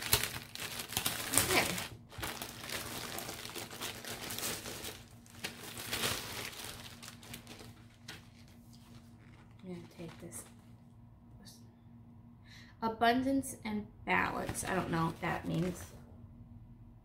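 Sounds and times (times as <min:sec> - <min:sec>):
plastic wrapping crinkling: 0:00.0 - 0:10.6, 0:14.3 - 0:16.0.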